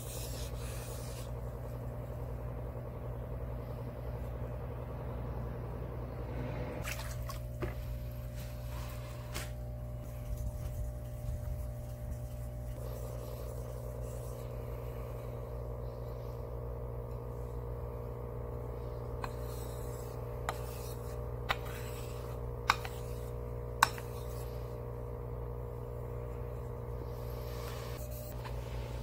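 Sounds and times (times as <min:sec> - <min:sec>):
steady low hum: 0:00.0 - 0:29.0
knife scraping on water stone: 0:19.2 - 0:24.5.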